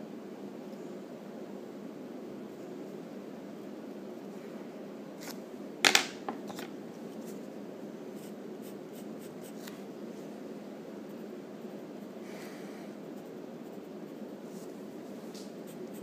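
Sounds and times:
pencil sketching on paper: 15.6 - 16.0.

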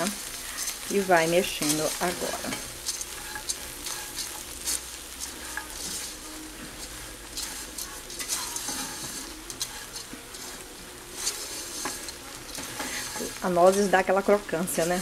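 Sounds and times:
spatula scraping pot: 0.0 - 15.0
steady hiss: 0.0 - 15.0.

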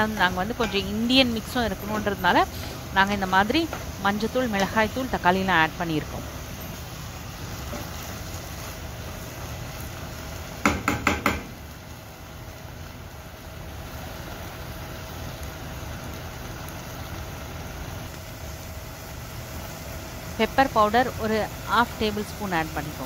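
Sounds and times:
meat frying with sizzle: 0.0 - 23.0
wooden spatula knocking pan: 10.6 - 11.6.

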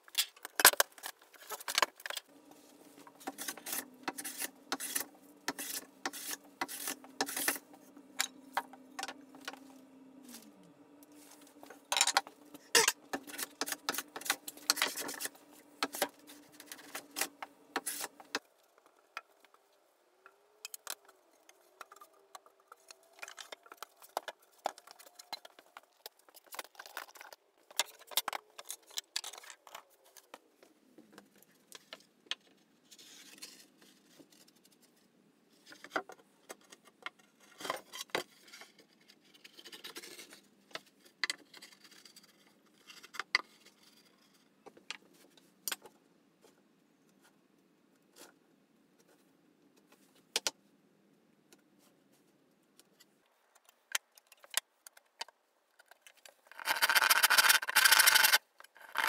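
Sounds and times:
boards and tools clattering: 0.2 - 9.8, 11.3 - 18.4
hand plane shaving wood: 2.9 - 8.0.

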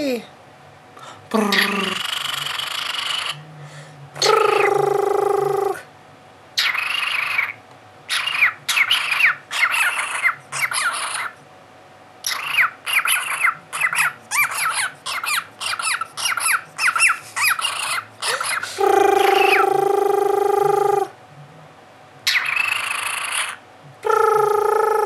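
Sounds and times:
cockatiel squawking: 1.5 - 3.4, 6.6 - 11.4, 12.2 - 19.7, 22.3 - 23.6.

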